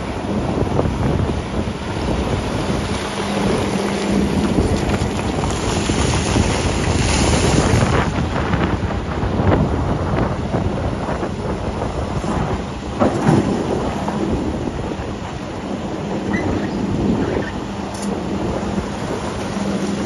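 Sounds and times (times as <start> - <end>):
excavator engine: 0.0 - 20.0
wind on microphone: 0.0 - 20.0
rocks knocking: 4.0 - 6.2.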